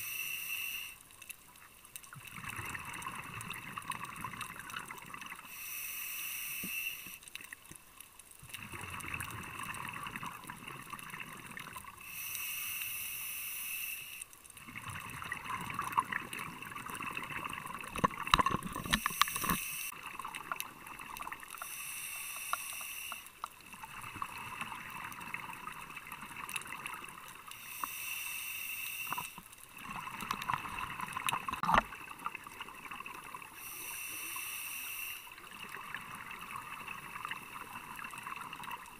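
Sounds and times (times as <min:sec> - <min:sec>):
regulator breath hiss: 0:00.0 - 0:01.0, 0:05.4 - 0:07.2, 0:12.0 - 0:14.3, 0:18.9 - 0:19.9, 0:21.6 - 0:23.4, 0:27.5 - 0:29.4, 0:33.6 - 0:35.4
exhaled bubbles underwater: 0:02.1 - 0:05.5, 0:08.4 - 0:12.0, 0:14.6 - 0:21.6, 0:23.6 - 0:27.5, 0:29.7 - 0:33.6, 0:35.4 - 0:38.9.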